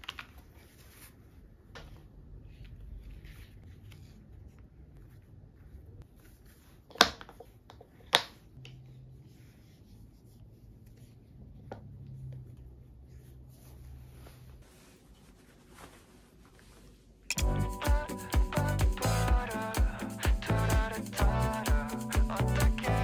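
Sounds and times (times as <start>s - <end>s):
soft rubbing and handling: 0.0s - 17.3s.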